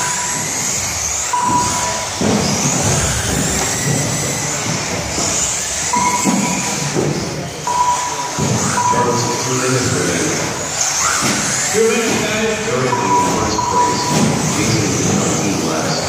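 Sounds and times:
toy car motors whining: 0.0 - 16.0
short steady beep: 1.3 - 2.2, 5.9 - 6.9, 7.7 - 9.5, 12.8 - 14.5.

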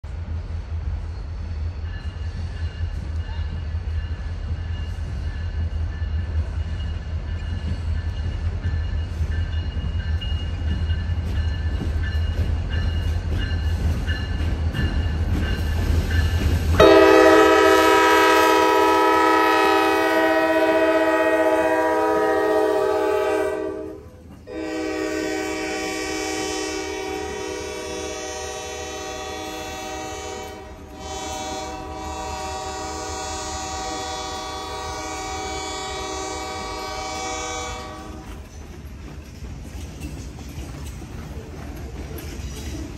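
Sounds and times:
diesel locomotives rumbling: 0.0 - 42.9
locomotive horn blasts: 16.8 - 38.3.

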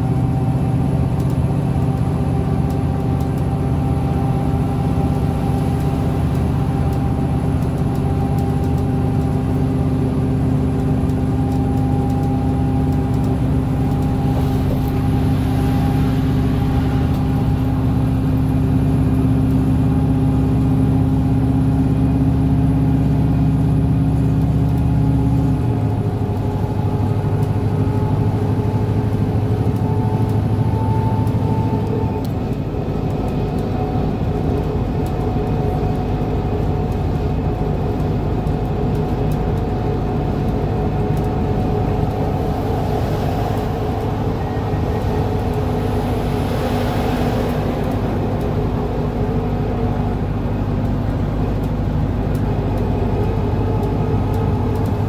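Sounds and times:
bus engine drone: 0.0 - 55.0
road and tyre noise: 0.0 - 55.0.

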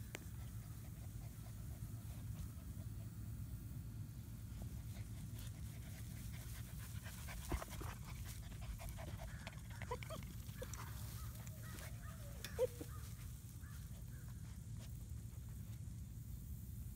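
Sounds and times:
puppies panting: 0.0 - 3.4, 4.5 - 16.0
clicks and rustles in grass: 4.5 - 16.2.

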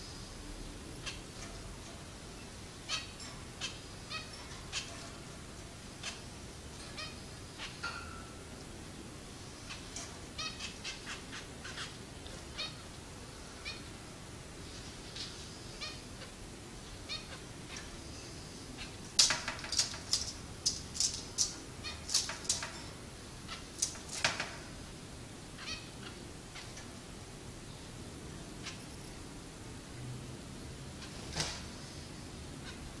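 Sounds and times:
finches chirping: 2.3 - 5.3, 6.0 - 8.2, 9.5 - 14.0, 17.0 - 19.0.

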